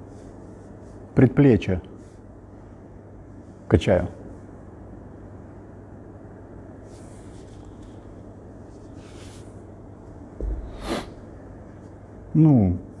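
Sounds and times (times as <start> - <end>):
soft rustles: 6.8 - 12.1
dumbbell thud on floor: 10.4 - 10.9.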